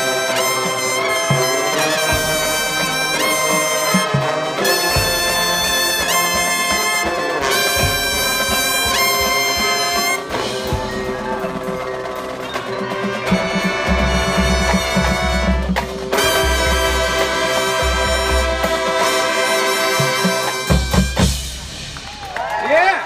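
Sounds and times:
brass chords with rips: 0.0 - 22.0
marimbas: 4.9 - 22.6.

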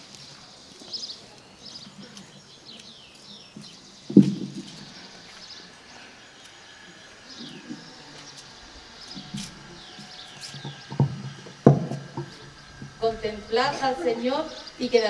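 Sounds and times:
small birds chirping: 0.0 - 15.0
dull knocks: 3.6 - 4.9, 9.1 - 13.0.

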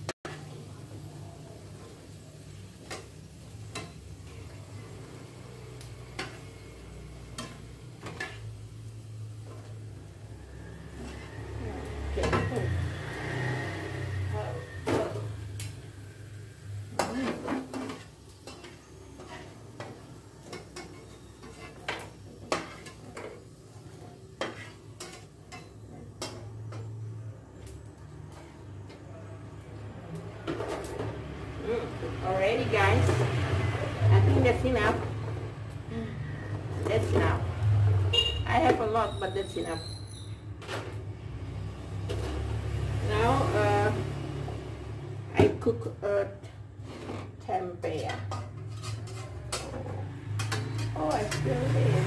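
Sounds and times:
hot oil sizzling: 0.0 - 52.0
metal utensils tapping a wok: 2.8 - 4.2, 16.9 - 27.1, 48.0 - 51.8
metal tongs clinking on frying pan: 24.4 - 27.0, 50.3 - 51.5.

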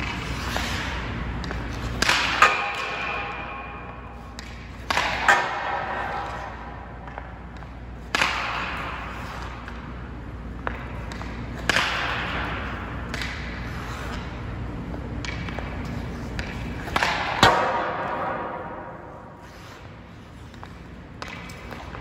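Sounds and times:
hockey stick shot cracks: 1.4 - 9.8, 10.6 - 13.6, 16.3 - 19.1.

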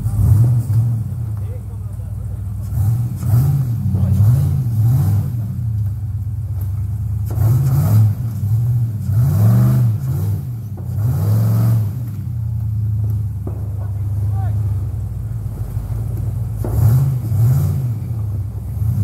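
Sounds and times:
engine revving in bursts: 0.0 - 1.4, 2.5 - 5.9, 7.0 - 19.0.

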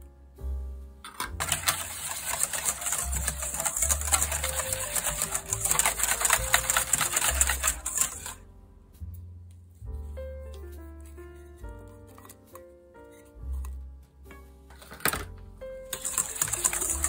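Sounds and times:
whisk beating in metal bowl: 1.4 - 8.4, 15.9 - 17.0.

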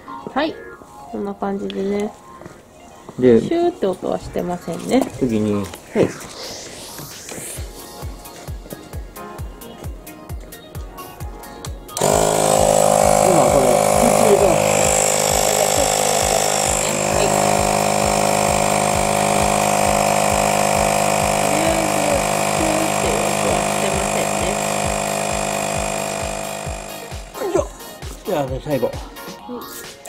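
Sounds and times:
electric air compressor running: 11.9 - 28.0.

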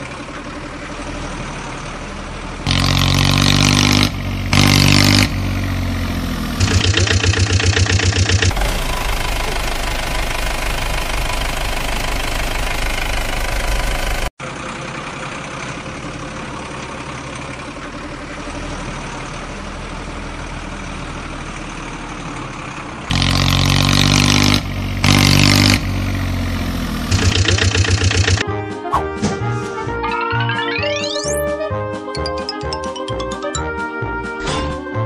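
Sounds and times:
truck engine running: 0.0 - 29.2.

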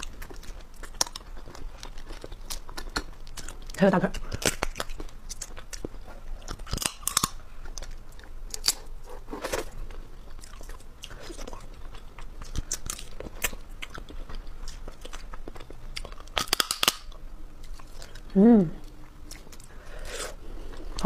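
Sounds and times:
biting and chewing: 0.0 - 21.0
crab shells cracking: 4.2 - 8.9, 14.7 - 17.2.

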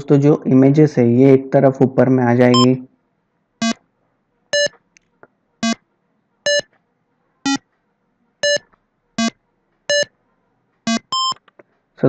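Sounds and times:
electronic game bleeps: 2.5 - 2.7, 8.4 - 8.6, 10.9 - 11.4.

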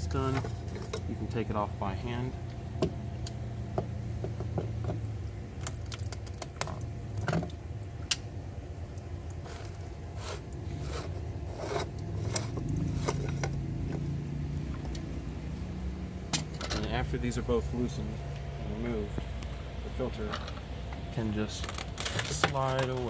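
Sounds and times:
steady low hum: 0.0 - 23.0
plastic threads clicking and scraping: 21.4 - 23.0.

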